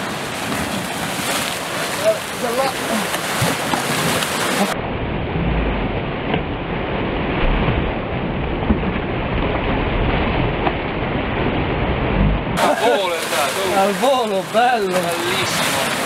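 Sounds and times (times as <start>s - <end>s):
sea waves breaking on rocks: 0.0s - 4.8s, 6.6s - 16.0s
low rumbling swells: 4.7s - 12.6s.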